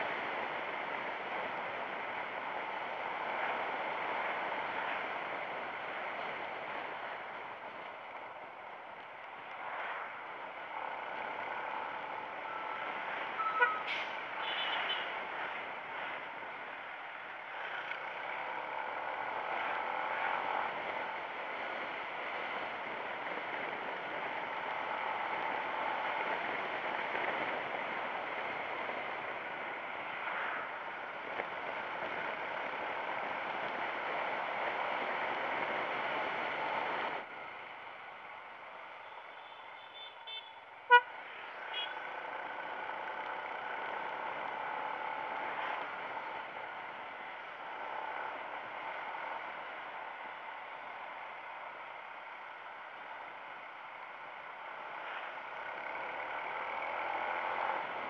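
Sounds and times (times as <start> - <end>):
motorcycle riding with wind noise: 0.0 - 58.0
horn beep: 12.4 - 15.0.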